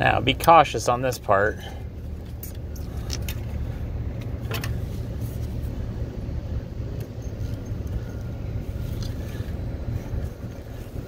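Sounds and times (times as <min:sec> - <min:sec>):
low rumble: 0:01.6 - 0:11.0
light clicks of drive belt: 0:02.1 - 0:04.8, 0:06.8 - 0:10.8.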